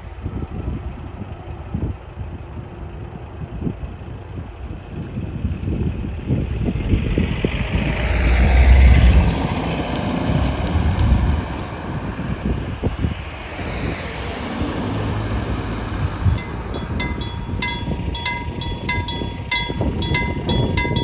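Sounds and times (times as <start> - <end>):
wind buffeting microphone: 15.8 - 21.0.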